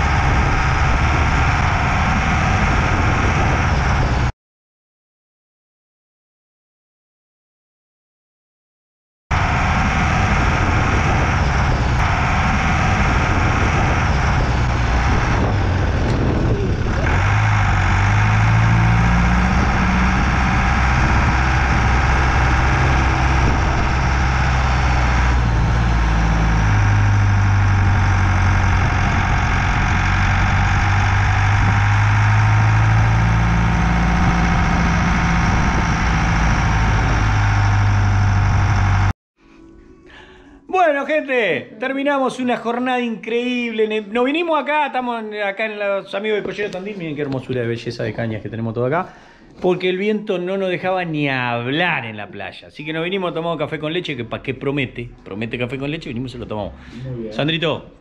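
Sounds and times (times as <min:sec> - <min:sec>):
steady rushing noise: 0:00.0 - 0:04.3, 0:09.3 - 0:39.1
vehicle engine running: 0:00.0 - 0:04.3, 0:09.3 - 0:39.1.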